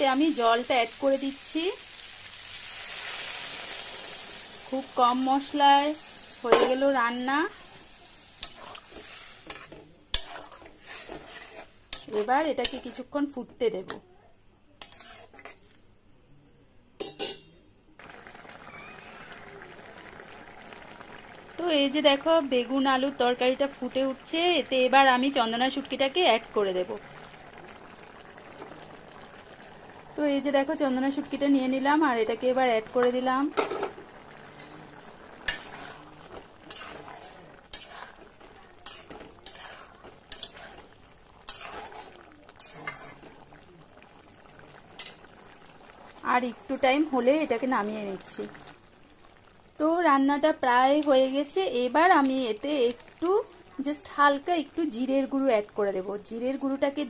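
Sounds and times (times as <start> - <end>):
curry bubbling: 0.0 - 13.4, 14.8 - 15.8, 18.0 - 57.0
metal spatula scraping wok: 7.6 - 13.1, 14.8 - 15.7, 33.0 - 43.5.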